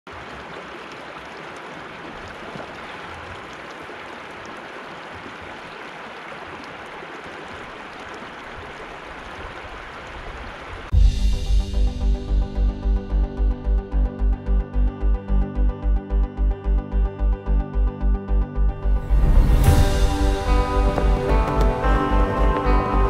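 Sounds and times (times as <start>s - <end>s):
stream flowing over rocks: 0.1s - 10.9s, 19.1s - 23.0s.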